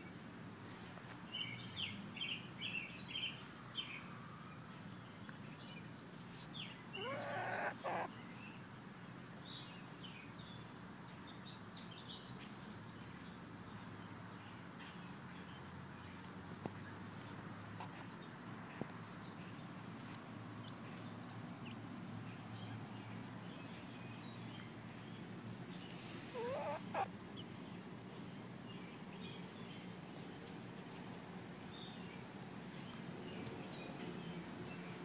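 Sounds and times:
warbling bird call: 7.0s - 8.1s, 26.3s - 27.1s
faint bird chirps: 25.8s - 27.1s.

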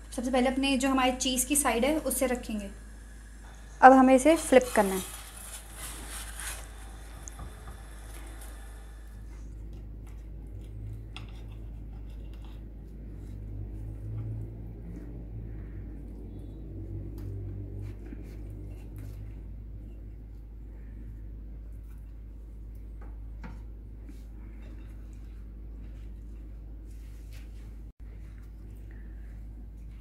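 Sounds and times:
metal spatula scraping: 4.2s - 9.5s.

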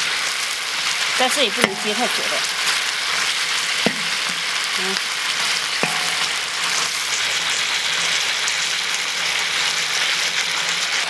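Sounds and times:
pork sizzling in hot oil: 0.0s - 11.0s
metal ladle knocking on wok: 1.6s - 2.7s, 3.9s - 4.6s, 5.8s - 6.9s.

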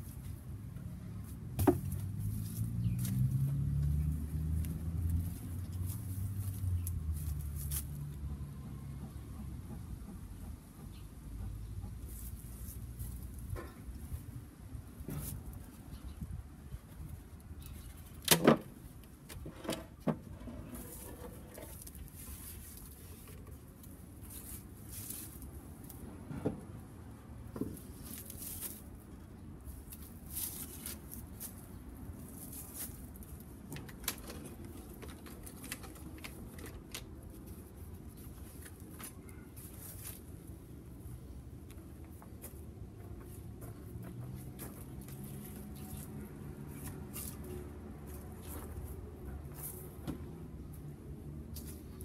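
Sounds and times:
wooden beehive parts knocking: 1.5s - 2.0s.

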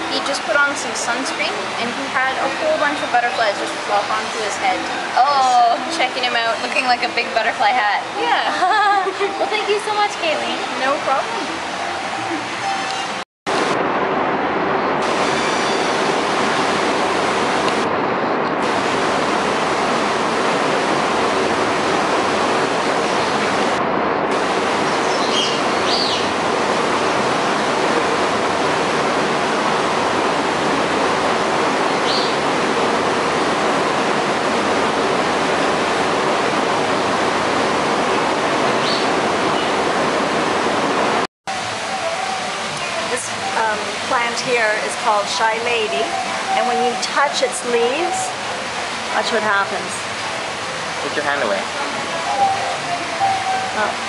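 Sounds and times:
steady rushing noise: 0.0s - 54.0s
faint hum: 8.0s - 41.0s.

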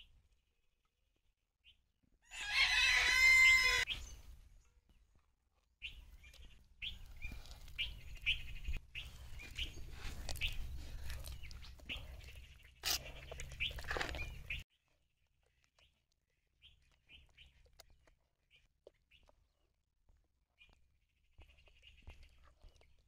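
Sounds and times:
rooster crowing: 2.2s - 3.9s
hand squelching wet batter: 5.6s - 14.6s, 15.2s - 23.0s.

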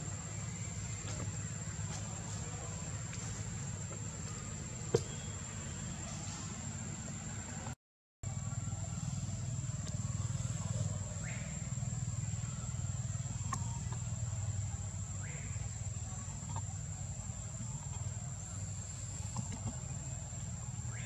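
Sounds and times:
continuous low rumble: 0.0s - 21.0s.

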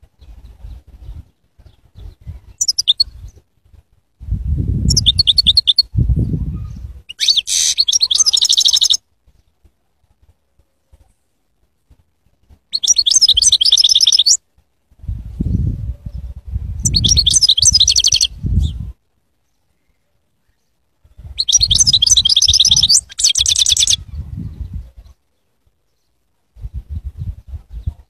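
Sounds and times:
goldfinch twittering song: 2.0s - 3.2s, 4.9s - 5.9s, 7.1s - 9.0s, 12.7s - 14.4s, 16.8s - 18.8s, 21.3s - 24.1s.

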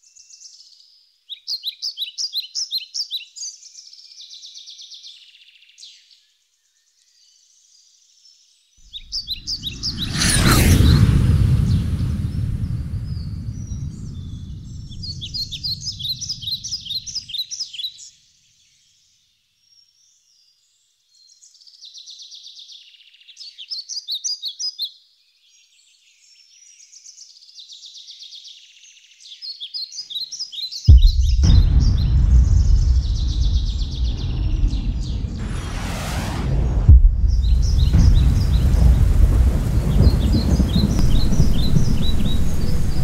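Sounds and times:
very loud deep noise: 8.9s - 17.2s, 30.9s - 43.0s.

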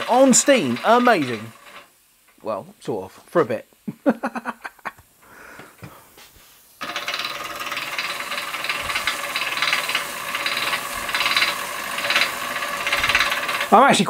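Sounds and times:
toy steam engine chattering: 0.0s - 1.9s, 6.8s - 14.0s
steam hissing: 0.0s - 2.2s, 5.2s - 14.0s.

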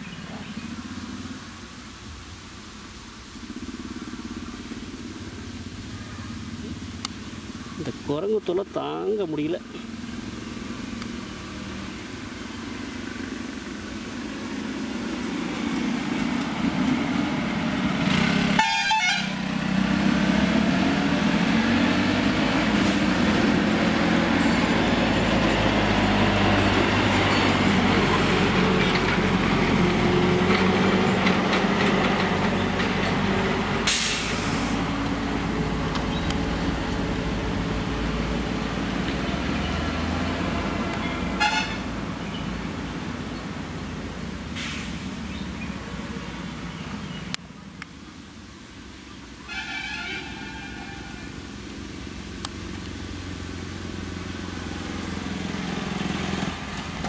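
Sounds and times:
short burst of hiss: 33.9s - 34.9s, 44.5s - 45.2s.

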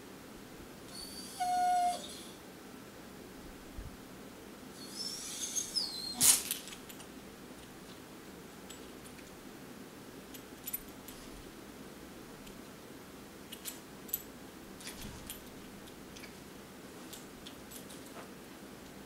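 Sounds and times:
faint steady hum: 0.0s - 19.0s
light clicks and clinks: 17.0s - 18.3s.

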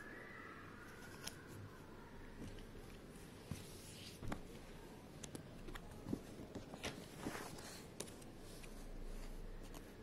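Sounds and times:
paper rustling: 5.7s - 10.0s.

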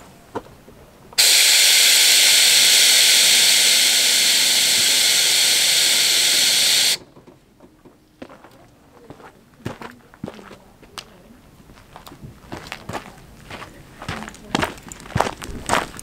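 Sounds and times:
air hissing from suspension: 1.2s - 7.0s.

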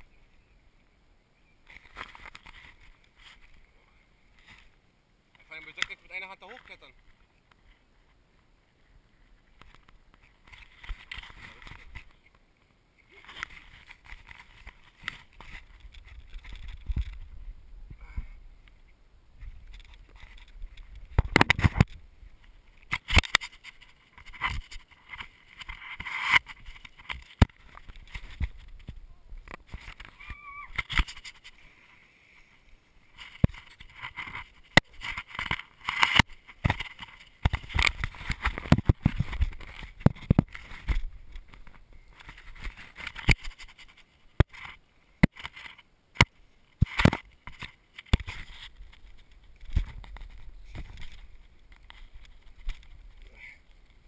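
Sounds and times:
knocks and scrapes on tree bark: 1.6s - 3.7s, 9.1s - 12.4s, 13.1s - 17.4s, 18.1s - 54.0s
camera rubbing on bark: 22.8s - 45.8s, 46.8s - 53.3s.

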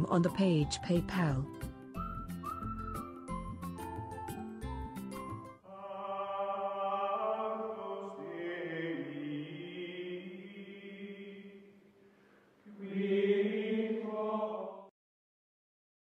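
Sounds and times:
choir singing held chords: 5.6s - 11.8s, 12.6s - 14.9s.

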